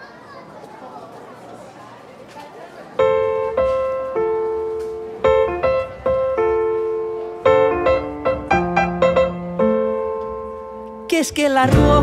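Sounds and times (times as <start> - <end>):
solo piano melody: 3.0 - 11.3.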